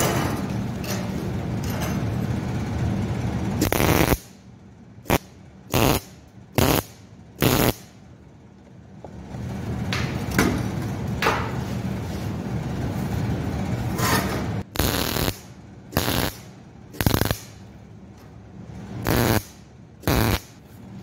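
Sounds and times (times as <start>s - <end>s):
welder hum and hiss: 3.6s - 4.4s, 5.0s - 8.0s, 14.7s - 17.7s, 18.9s - 20.8s
welding arc buzzing: 3.6s - 4.4s, 5.0s - 8.0s, 14.6s - 17.7s, 19.0s - 20.6s.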